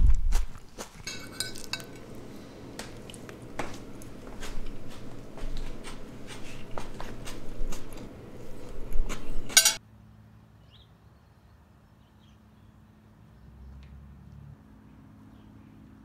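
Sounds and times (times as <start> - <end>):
cutlery clicking on a plate: 1.0 - 8.0, 9.0 - 9.8.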